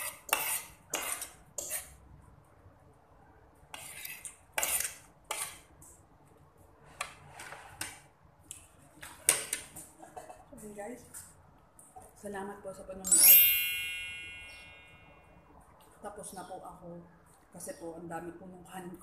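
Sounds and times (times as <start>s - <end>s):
cutlery scraping ceramic plate: 0.0s - 2.0s, 3.7s - 5.6s.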